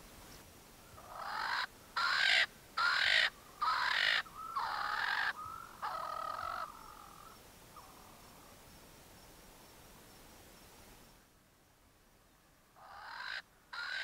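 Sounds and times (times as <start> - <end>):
francolin harsh calls: 0.8 - 8.6, 12.8 - 14.0.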